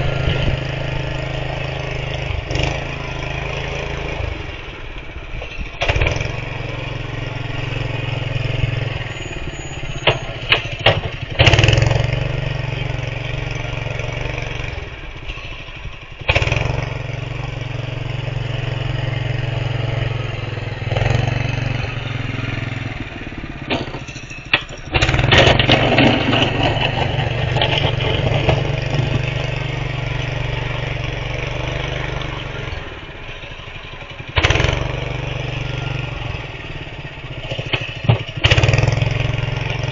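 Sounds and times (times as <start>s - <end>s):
snow plow engine running: 0.0s - 39.9s
sharp knocks and clatters: 10.0s - 11.9s, 23.6s - 29.7s, 37.5s - 39.1s.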